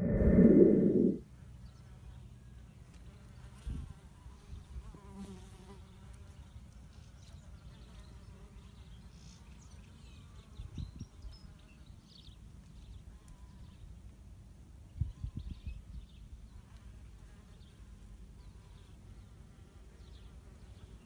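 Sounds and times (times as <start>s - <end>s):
low rumble: 0.0s - 1.2s.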